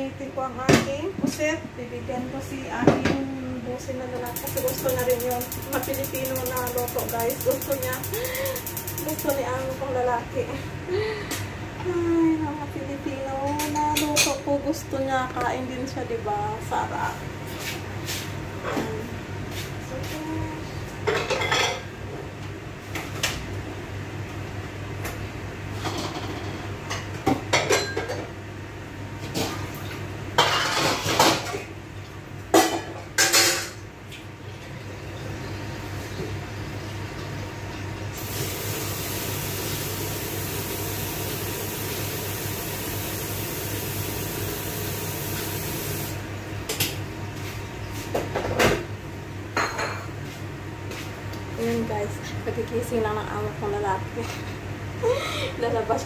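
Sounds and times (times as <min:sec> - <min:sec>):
low steady hum: 0:00.0 - 0:17.4
running tap water: 0:04.3 - 0:09.5, 0:38.2 - 0:46.2.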